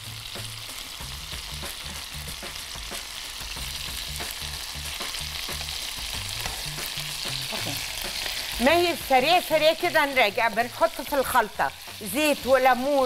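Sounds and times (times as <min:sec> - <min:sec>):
prawns sizzling in oil: 0:00.0 - 0:13.0
spatula clicking and scraping pan: 0:06.4 - 0:07.0.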